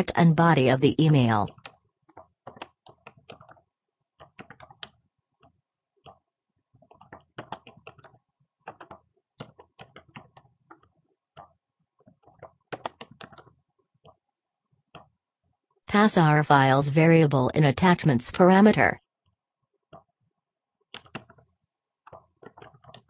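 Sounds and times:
computer keyboard typing: 0.9 - 14.2, 20.8 - 23.0.

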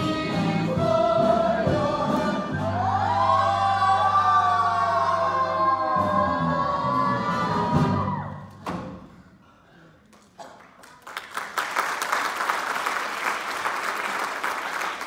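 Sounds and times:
audience applauding: 10.1 - 15.0.

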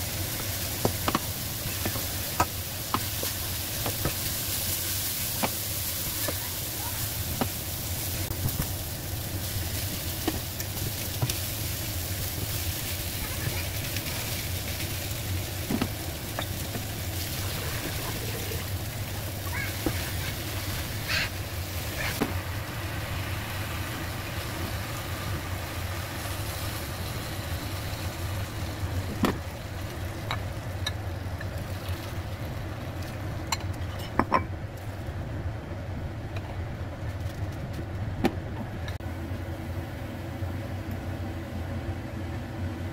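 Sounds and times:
food sizzling in a wok: 0.0 - 31.9.

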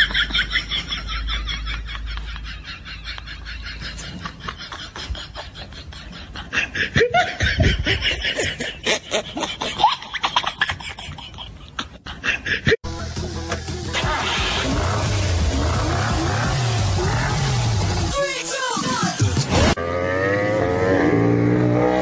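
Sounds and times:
people laughing: 0.0 - 12.8.

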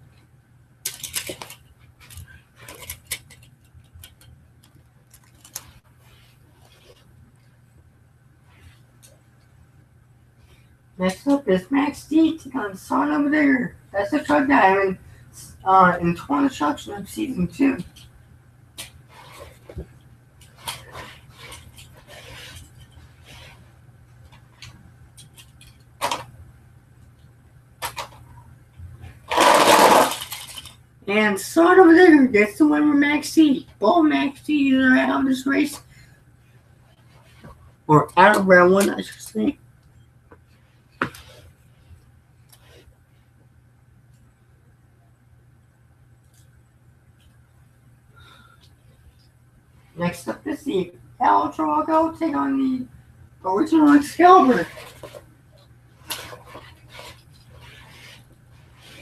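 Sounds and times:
toy trucks clattering together: 0.8 - 4.2, 29.3 - 30.8
toy trucks rattling down ramp: 29.3 - 30.8.

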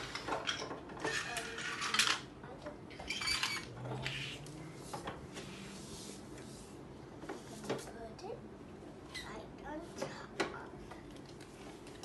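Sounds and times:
plastic toy pieces clattering: 0.0 - 2.3, 3.0 - 4.4.

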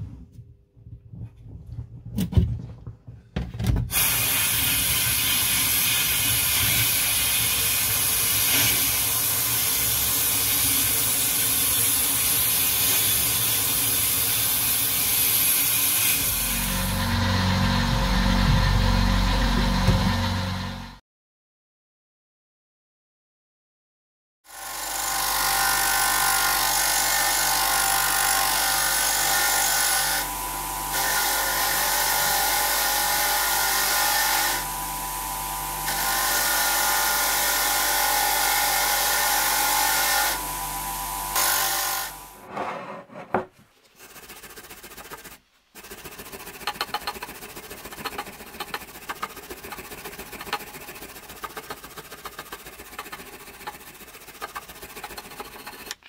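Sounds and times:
hand brush scrubbing metal: 43.8 - 56.0.

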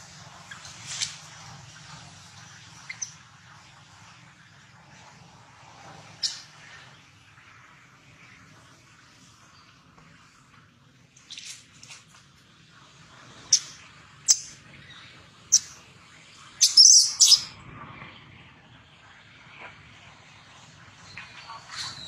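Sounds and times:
baby monkey squealing: 16.6 - 17.5.

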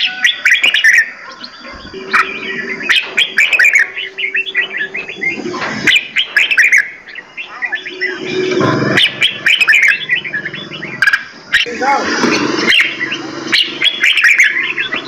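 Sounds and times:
songbirds chirping and trilling: 0.0 - 15.0.

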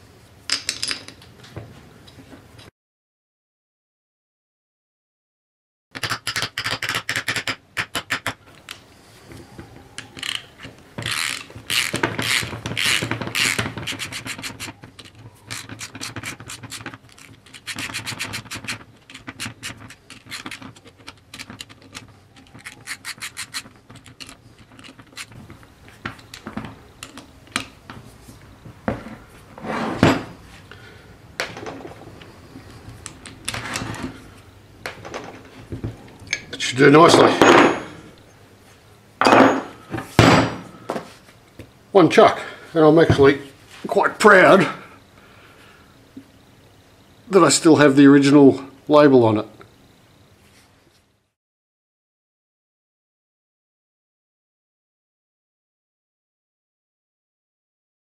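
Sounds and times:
metal scraping and rubbing: 9.4 - 25.5, 29.1 - 30.6, 31.8 - 34.4
ratchet clicking: 10.2 - 10.4, 11.0 - 14.0.

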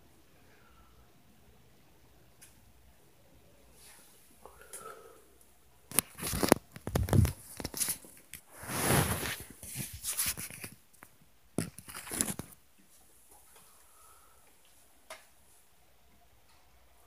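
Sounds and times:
rustling scrape: 6.0 - 10.8.

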